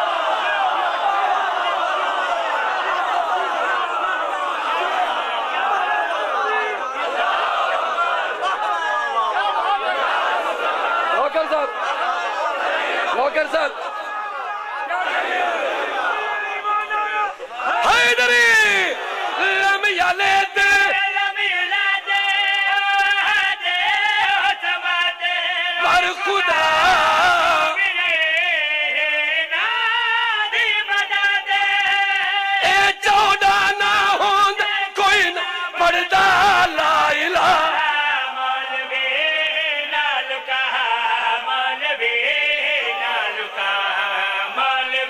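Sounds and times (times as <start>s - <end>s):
man singing devotional recitation: 16.6s - 45.0s
man chanting melodically: 17.8s - 44.8s.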